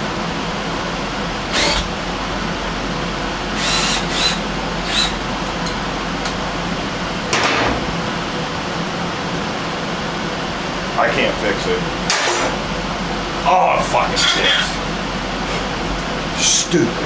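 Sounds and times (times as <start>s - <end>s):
steady background hum: 0.0s - 17.0s
cordless drill whirring: 1.5s - 1.9s, 3.6s - 5.2s.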